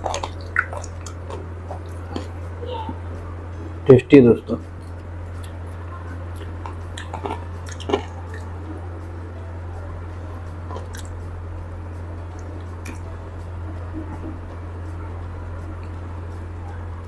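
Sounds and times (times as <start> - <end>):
wet mouth clicks: 0.0 - 2.3, 6.4 - 8.5, 10.8 - 11.1
chewing and biting meat: 0.0 - 2.4, 6.3 - 8.5, 10.7 - 11.2
steady low hum: 0.0 - 17.0.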